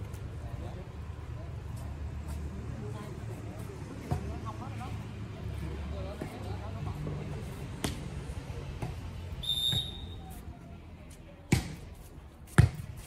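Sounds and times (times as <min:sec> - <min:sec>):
sharp hits on a volleyball: 0:07.8 - 0:08.1, 0:11.4 - 0:13.0
high whistle blast: 0:09.4 - 0:10.2.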